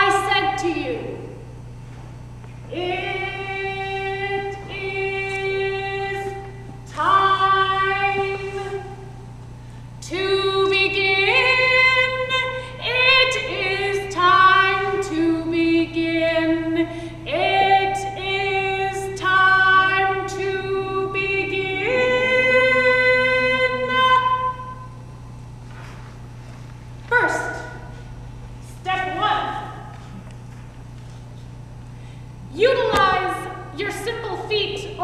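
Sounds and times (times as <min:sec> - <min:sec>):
woman singing unaccompanied: 0:02.7 - 0:09.1, 0:10.0 - 0:24.8.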